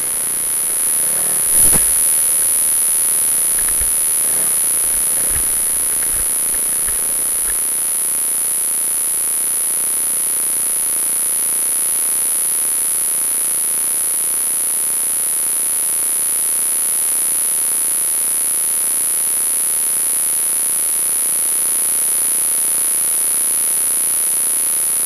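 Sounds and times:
high-pitched electronic whine: 0.0 - 7.7
loud hiss: 0.0 - 7.7.

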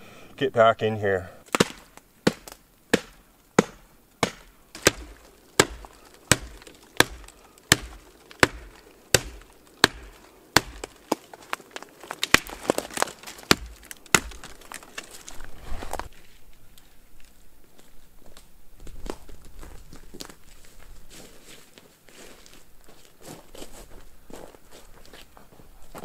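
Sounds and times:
wood chopping strikes: 1.4 - 15.4.

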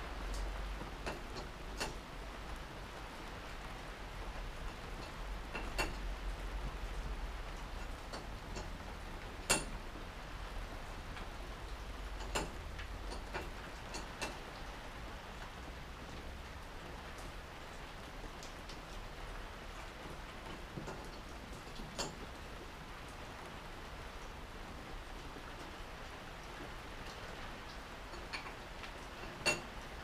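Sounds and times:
metallic clicks of hand tools: 9.5 - 9.7, 12.2 - 14.4, 29.2 - 29.7.

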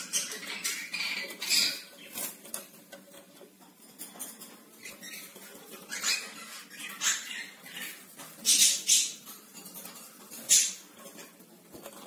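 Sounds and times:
bird squeaks: 0.0 - 2.0, 4.8 - 9.2.

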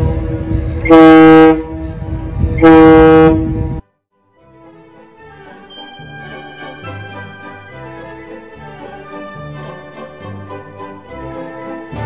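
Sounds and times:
wind rumble on microphone: 0.0 - 3.8
ship's horn blasts: 0.7 - 2.0, 2.6 - 3.8.

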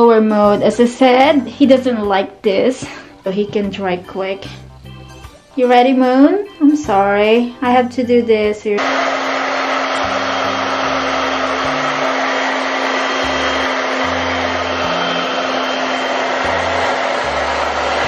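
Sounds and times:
hair dryer blowing: 8.8 - 18.0.

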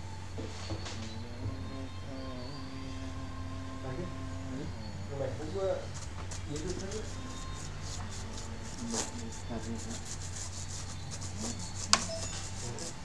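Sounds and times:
brush sweeping keyboard: 5.9 - 13.0.

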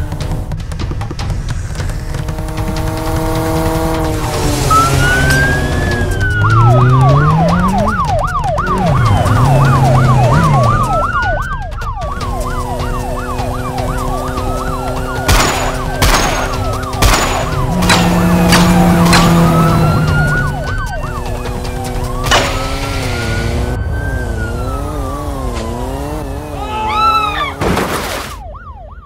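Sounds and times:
motorcycle engine revving: 0.0 - 11.3, 12.0 - 27.6
police siren yelp and wail: 4.0 - 29.0
sharp bangs: 15.2 - 20.1, 22.2 - 23.2.

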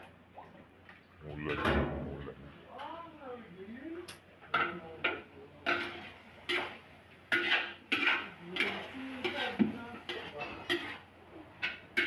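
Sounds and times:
metal spatula scraping a wok: 5.6 - 11.1.

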